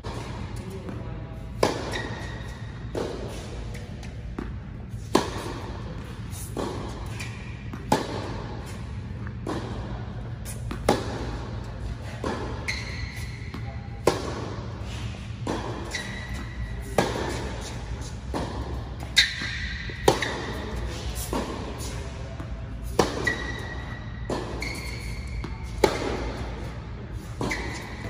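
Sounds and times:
racket hitting tennis ball: 0:00.0 - 0:28.0.

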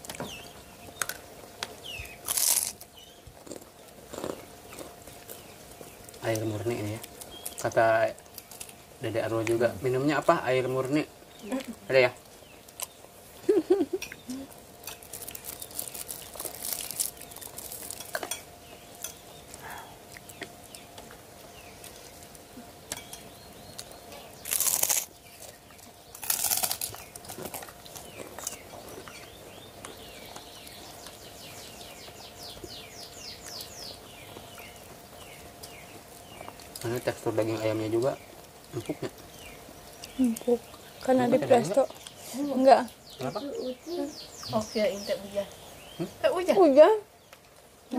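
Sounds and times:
plastic crinkling: 0:14.8 - 0:18.4
small clicks and crunches: 0:14.8 - 0:18.4.

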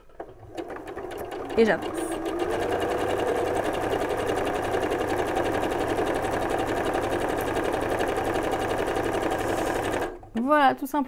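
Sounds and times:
sewing machine running: 0:00.0 - 0:10.3.

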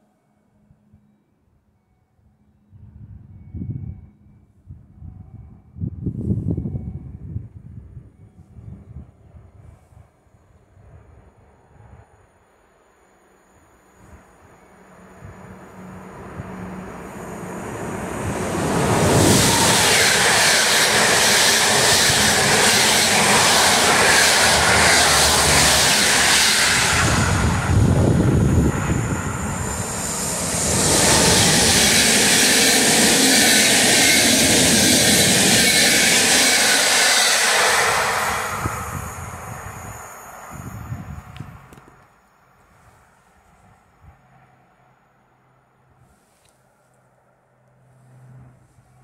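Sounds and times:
train wheels rumbling on rails: 0:14.0 - 0:42.1.

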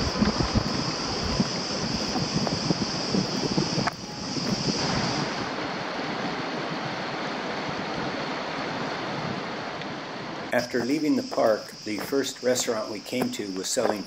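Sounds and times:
high insect buzz: 0:00.0 - 0:06.8, 0:10.5 - 0:14.0
running water rushing: 0:00.0 - 0:14.0.

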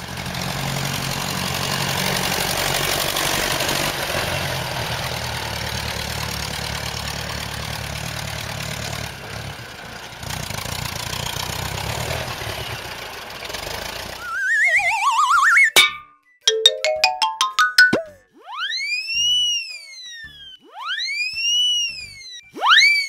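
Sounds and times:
tractor engine running: 0:00.0 - 0:14.3
warbling cartoon whistle: 0:14.2 - 0:16.2, 0:17.0 - 0:23.0.

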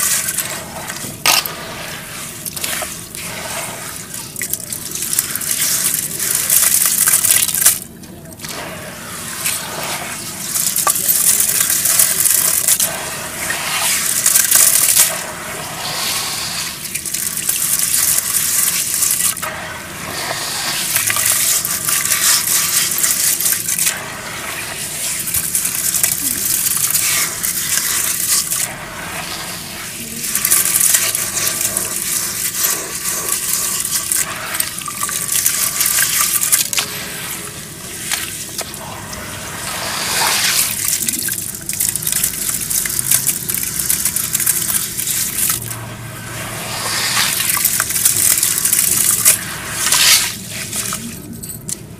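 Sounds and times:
hands squelching wet mud: 0:20.2 - 0:24.0, 0:24.7 - 0:45.8, 0:46.4 - 0:51.5.

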